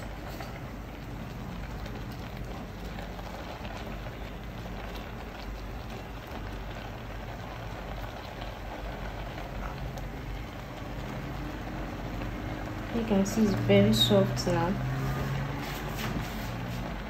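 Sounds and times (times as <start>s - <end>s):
pot of sauce bubbling: 0.0s - 17.0s
spatula stirring: 13.8s - 17.0s.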